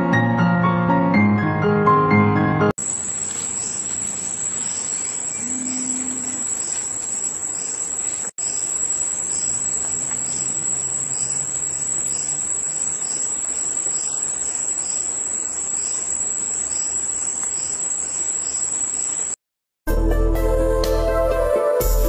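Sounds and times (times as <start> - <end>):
crickets chirping: 2.8 - 19.4.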